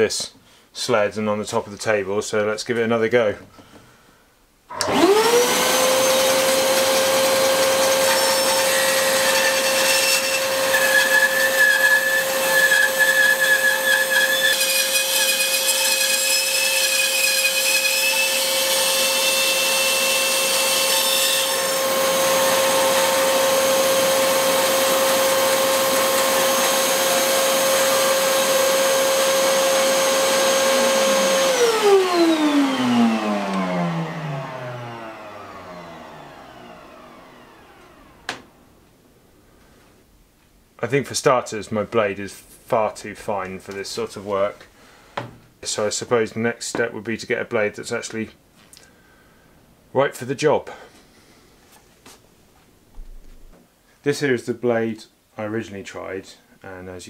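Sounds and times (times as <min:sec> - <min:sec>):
bandsaw motor humming: 0:04.7 - 0:38.5
bandsaw spinning down: 0:04.7 - 0:38.5
high whining tones: 0:21.8 - 0:38.4.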